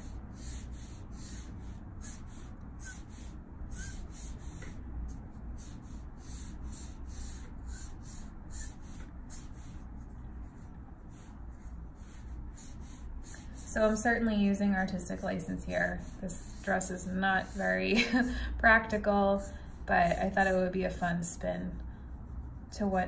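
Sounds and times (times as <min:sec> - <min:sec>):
marker nib stroking paper: 0:00.0 - 0:14.3, 0:15.5 - 0:17.9
low steady hum: 0:00.0 - 0:23.0.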